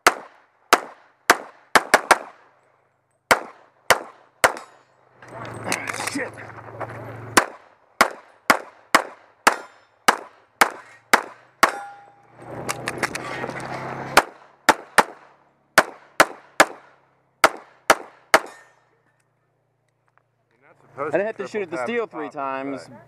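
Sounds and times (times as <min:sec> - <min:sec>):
pistol shots: 0:00.0 - 0:02.5, 0:03.3 - 0:04.8, 0:07.4 - 0:11.9, 0:14.2 - 0:18.7
movement noise: 0:05.1 - 0:07.4, 0:11.8 - 0:14.2
bullet ringing on steel target: 0:11.6 - 0:12.3, 0:18.4 - 0:18.9.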